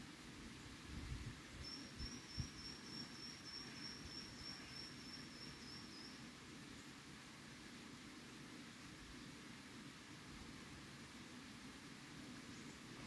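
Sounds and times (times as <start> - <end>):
high-pitched insect trill: 1.6 - 6.2.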